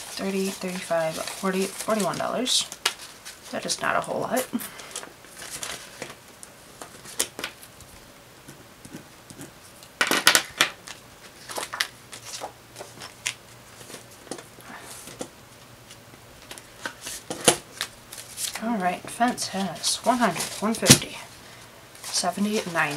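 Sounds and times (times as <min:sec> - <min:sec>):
plastic pouches crinkling: 0:00.0 - 0:03.7, 0:10.0 - 0:15.3, 0:16.4 - 0:22.9.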